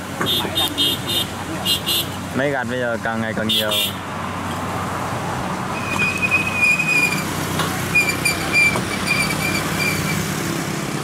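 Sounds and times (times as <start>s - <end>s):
combine harvester running: 5.5s - 11.0s.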